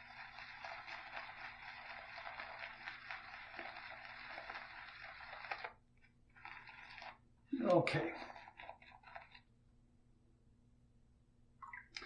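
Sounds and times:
brush swishing lather in bowl: 6.3s - 9.5s.

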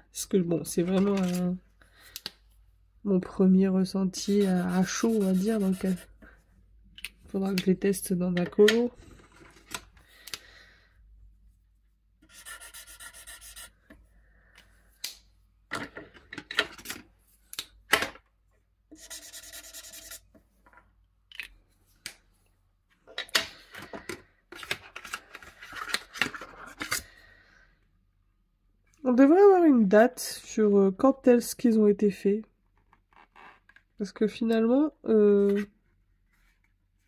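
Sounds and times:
rubbing and scraping packaging: 4.2s - 6.2s, 24.5s - 27.1s.

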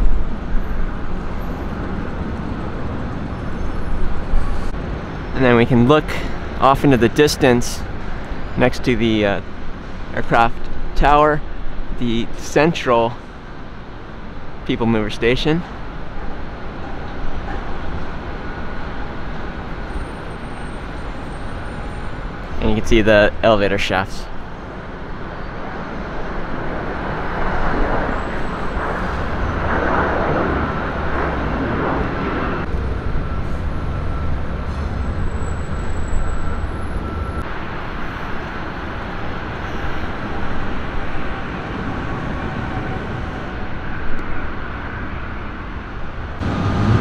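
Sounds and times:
road traffic rumble: 0.0s - 47.0s
vehicle passing: 46.4s - 47.0s.

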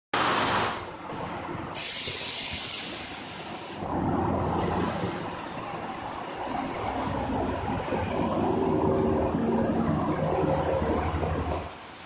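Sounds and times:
loud hiss: 1.7s - 4.0s, 6.4s - 8.0s.

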